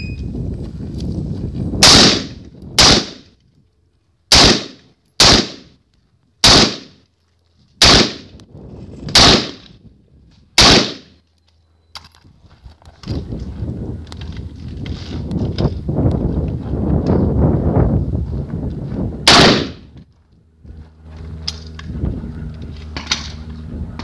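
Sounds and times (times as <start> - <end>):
rifle shots with echo: 1.8 - 3.2, 4.3 - 5.7, 6.4 - 7.0, 7.8 - 8.3, 9.1 - 9.7, 10.6 - 11.2, 19.3 - 19.8.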